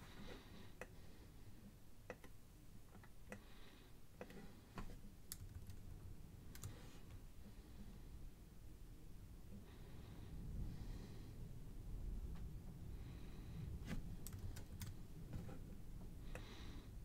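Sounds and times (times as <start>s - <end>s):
low room hum: 0.0s - 17.0s
computer mouse clicks: 2.0s - 3.5s, 6.5s - 6.8s, 14.2s - 15.0s.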